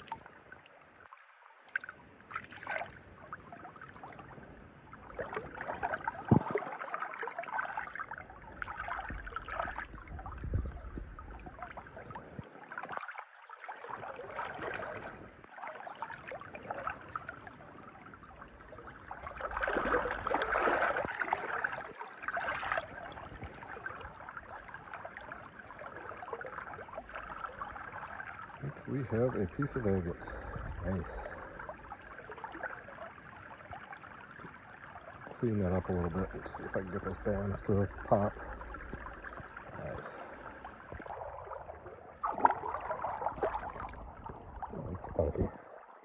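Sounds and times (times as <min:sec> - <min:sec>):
river water splashing and gurgling: 0:00.0 - 0:46.0.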